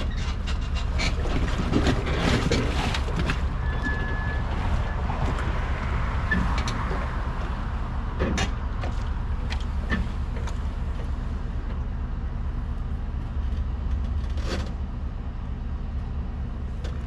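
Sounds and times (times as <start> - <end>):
hull and trailer knocks and creaks: 0.0 - 11.2
engine rumbling: 0.0 - 17.0.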